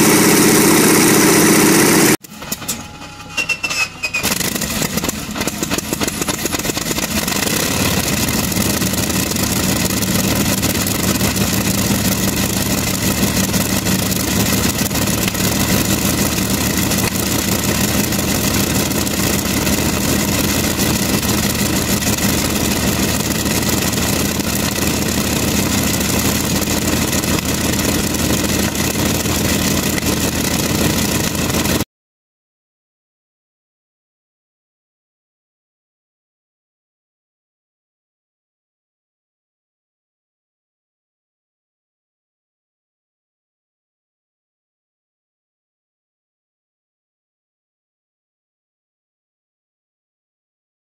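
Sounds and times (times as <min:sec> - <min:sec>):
radial aircraft engine idling: 0:00.0 - 0:02.2, 0:04.6 - 0:31.8.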